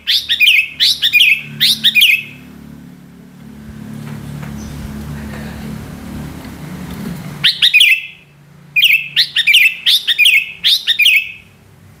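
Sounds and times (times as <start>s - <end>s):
bird calling rapid sharp notes: 0.0s - 2.5s, 7.4s - 11.6s.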